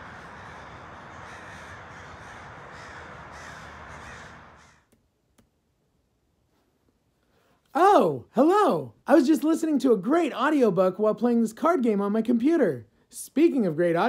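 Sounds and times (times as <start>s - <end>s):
crows cawing: 0.0s - 4.9s
outdoor ambience hiss: 0.0s - 14.0s.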